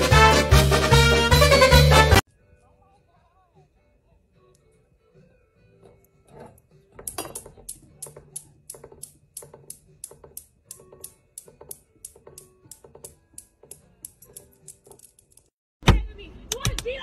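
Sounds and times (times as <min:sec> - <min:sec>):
steel balls clicking: 0:07.0 - 0:15.6.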